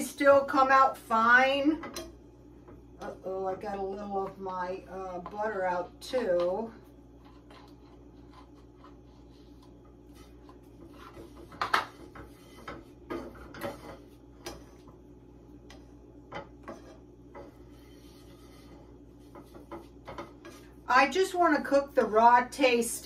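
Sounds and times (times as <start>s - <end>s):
spatula scraping in a skillet: 3.7s - 15.0s, 15.6s - 22.6s.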